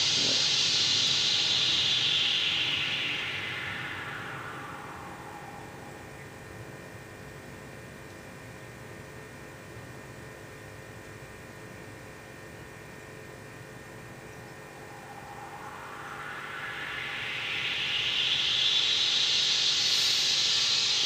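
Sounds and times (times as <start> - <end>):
synthesized whooshing noise: 0.0 - 7.2, 13.7 - 21.0.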